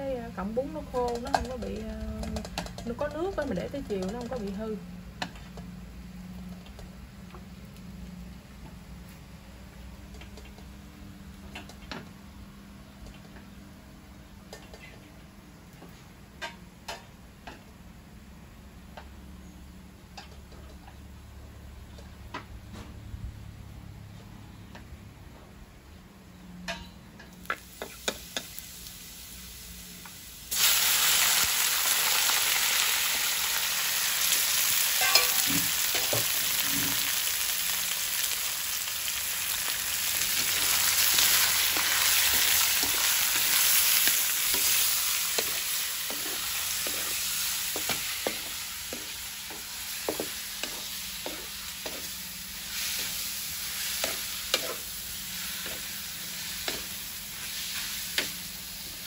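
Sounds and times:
meat sizzling in hot oil: 27.5s - 59.0s
chopsticks scraping wok: 34.8s - 37.4s, 40.1s - 58.5s
utensils clinking: 35.0s - 36.3s.

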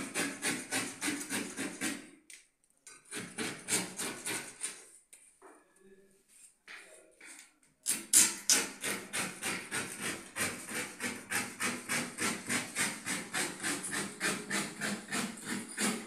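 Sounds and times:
hand tool scraping plywood: 0.0s - 2.1s, 3.0s - 4.9s, 8.5s - 16.0s.

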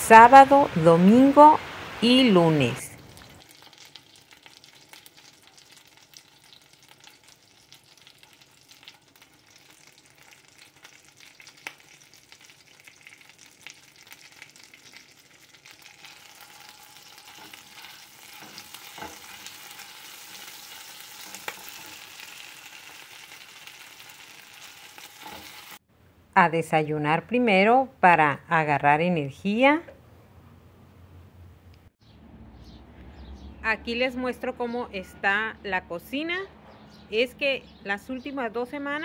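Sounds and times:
food sizzling in a pan: 0.2s - 25.8s
spatula stirring pan: 14.2s - 25.8s.

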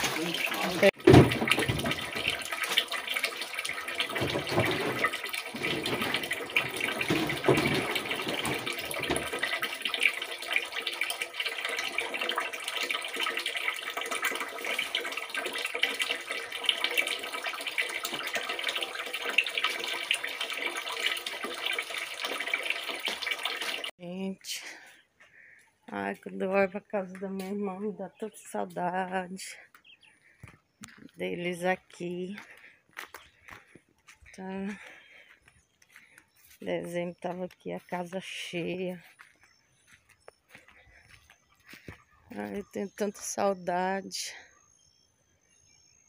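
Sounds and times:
water running into tank: 0.0s - 24.0s.

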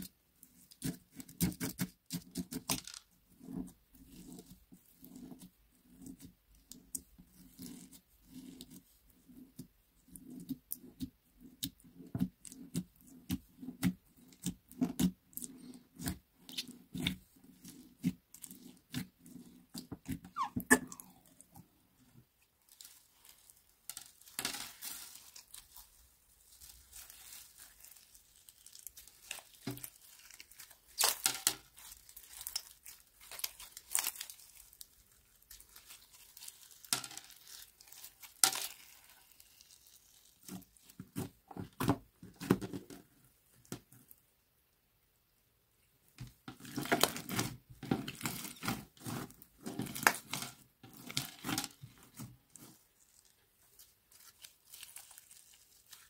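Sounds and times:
slime crackling and popping: 22.6s - 41.8s, 46.7s - 56.0s.

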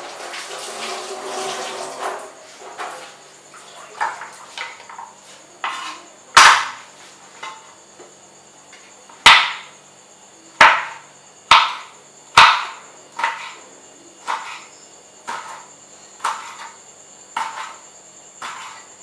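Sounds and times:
knife chopping on wooden board: 5.6s - 6.8s, 9.2s - 9.7s, 10.6s - 13.6s, 14.2s - 16.8s, 17.4s - 17.8s, 18.4s - 18.9s.

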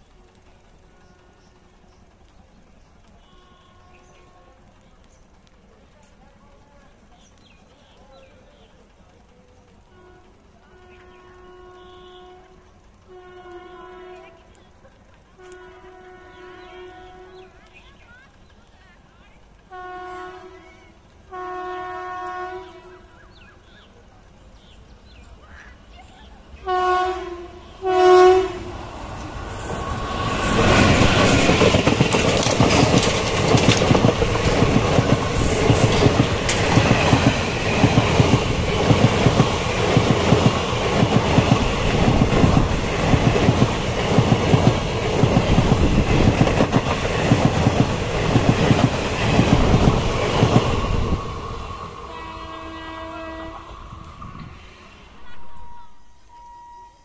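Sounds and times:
train passing at speed: 0.0s - 57.0s
train horn blasts: 3.2s - 4.8s, 9.9s - 14.6s, 15.4s - 17.6s, 19.7s - 23.3s, 26.6s - 33.2s, 52.0s - 57.0s
wheels clacking over rail joints: 28.6s - 52.1s.

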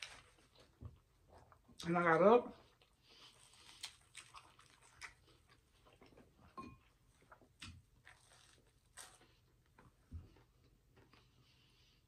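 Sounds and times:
chewing with wet mouth clicks: 2.8s - 6.3s.

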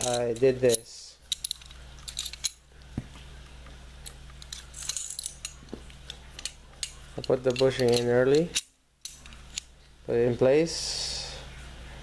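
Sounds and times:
pistol parts clicking and knocking: 0.0s - 2.6s.

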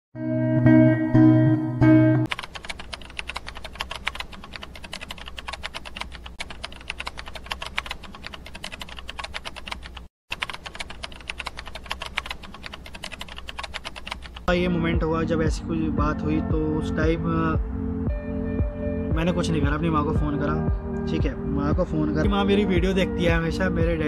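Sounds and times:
computer keyboard typing: 2.3s - 14.5s.

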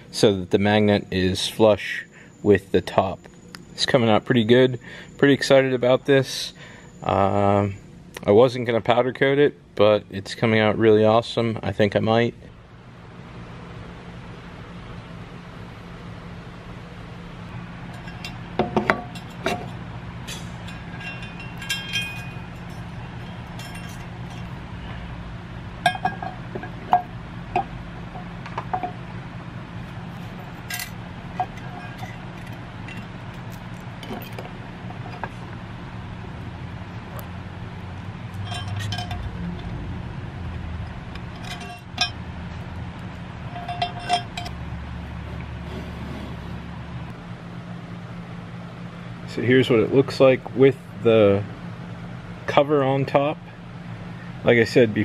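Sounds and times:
steady low hum: 0.0s - 55.0s
high ringing metal clinks: 17.9s - 24.9s, 25.8s - 29.0s, 30.4s - 35.3s, 38.3s - 39.3s, 43.5s - 44.6s
metal knocks: 18.0s - 24.5s, 25.8s - 29.0s.

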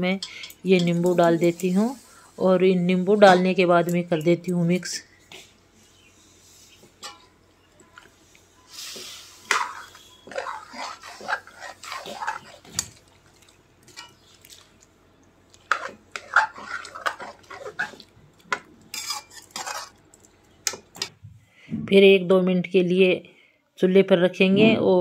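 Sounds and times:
ladle scraping metal pan: 8.8s - 12.8s, 15.7s - 18.0s, 18.9s - 20.0s.

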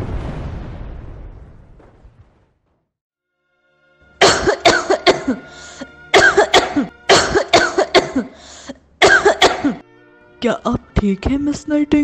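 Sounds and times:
woman coughing hard: 4.2s - 9.8s.

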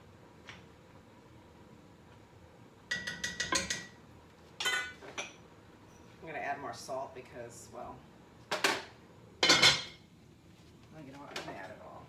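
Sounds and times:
pots and pans clanking: 2.9s - 4.0s, 4.6s - 5.4s, 9.4s - 10.0s.

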